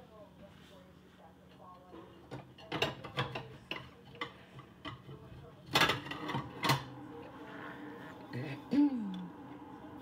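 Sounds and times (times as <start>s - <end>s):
dishes and utensils clattering: 1.5s - 6.9s.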